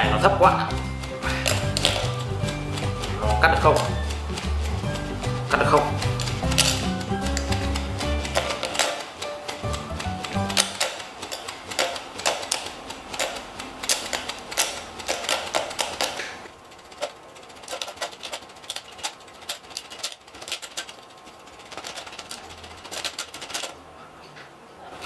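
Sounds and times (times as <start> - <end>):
spinning bottle cap clicking: 0.7 - 16.2.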